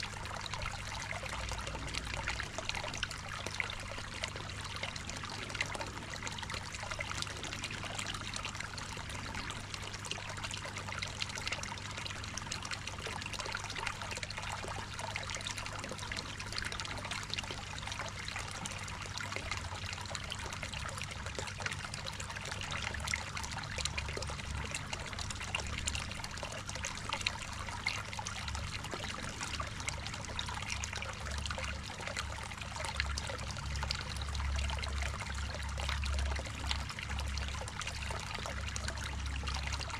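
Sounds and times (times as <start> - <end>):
water trickling into a pond: 0.0 - 39.9.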